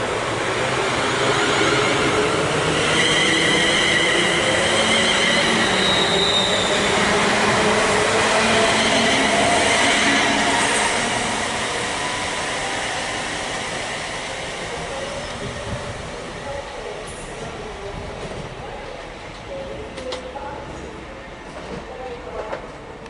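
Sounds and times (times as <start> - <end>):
electric train whine: 0.0 - 16.4.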